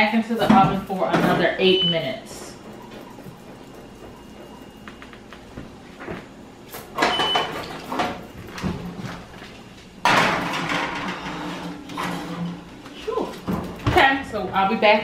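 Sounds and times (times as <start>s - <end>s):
metal pan scraping on oven rack: 10.0s - 12.7s.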